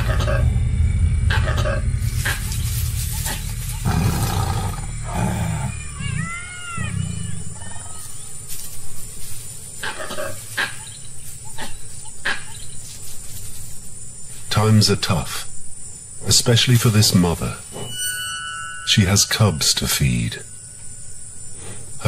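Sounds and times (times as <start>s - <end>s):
tiger growling and snarling: 3.2s - 7.9s
short high calls: 17.6s - 21.4s.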